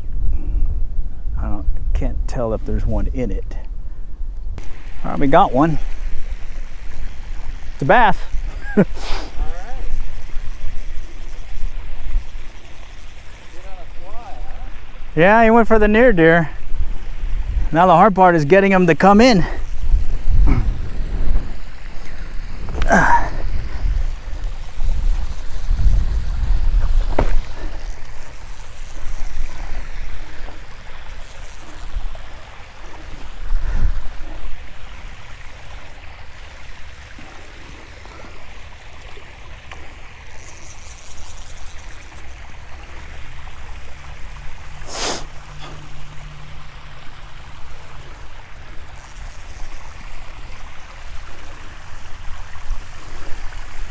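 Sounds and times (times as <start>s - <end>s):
wind buffeting microphone: 0.0s - 8.6s, 14.4s - 17.9s, 19.6s - 28.2s, 33.0s - 35.1s.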